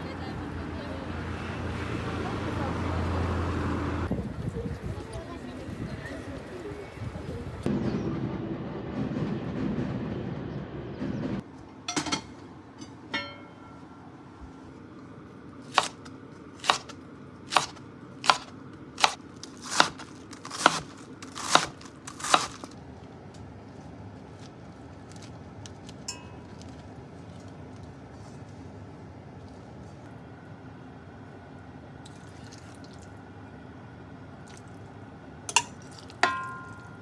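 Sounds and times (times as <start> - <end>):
knife chopping cabbage on board: 15.7 - 22.8.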